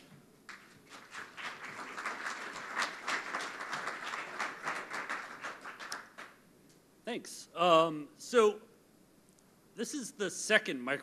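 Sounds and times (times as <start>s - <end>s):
audience applauding: 0.5s - 6.4s.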